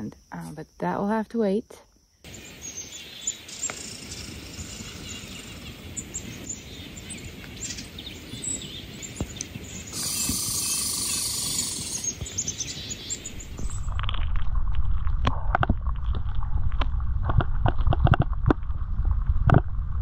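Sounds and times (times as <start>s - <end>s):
outdoor background hiss: 0.0s - 13.7s
songbirds chirping: 0.0s - 13.8s
hiss with steady held tone: 9.9s - 12.2s.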